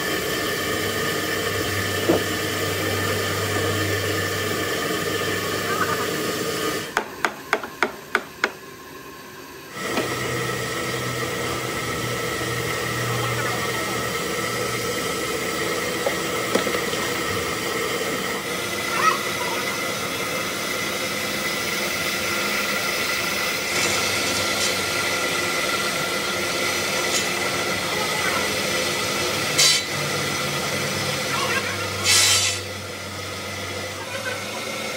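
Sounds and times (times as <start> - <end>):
stone cutting machine humming: 0.0 - 8.6, 9.6 - 34.9
water spray hissing: 15.4 - 32.8.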